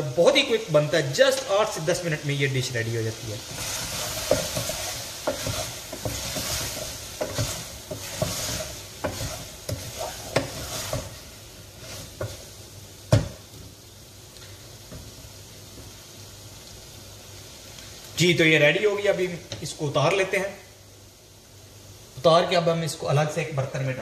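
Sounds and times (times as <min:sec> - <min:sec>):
meat sizzling in a pot: 0:00.0 - 0:24.0
wooden spoon scraping a pot: 0:03.4 - 0:12.5.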